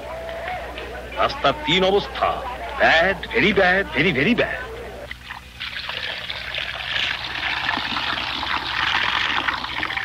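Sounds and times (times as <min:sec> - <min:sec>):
liquid pouring and splashing: 0:05.2 - 0:10.0.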